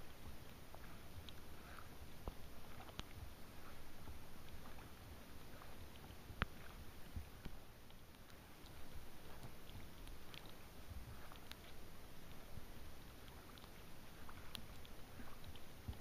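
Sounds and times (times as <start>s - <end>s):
water dripping and tapping: 13.2s - 16.0s.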